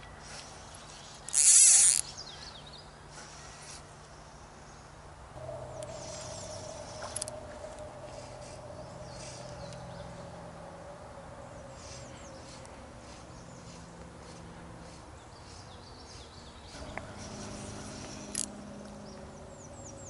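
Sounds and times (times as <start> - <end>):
steady droning tone: 5.3 - 15.7, 16.6 - 20.0
high-pitched call: 5.4 - 10.9
faint high chirps: 5.4 - 13.7.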